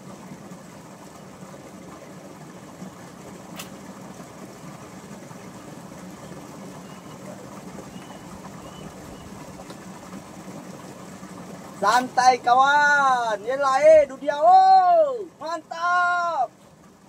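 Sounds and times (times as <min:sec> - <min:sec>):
sharp click: 0:03.6 - 0:03.8.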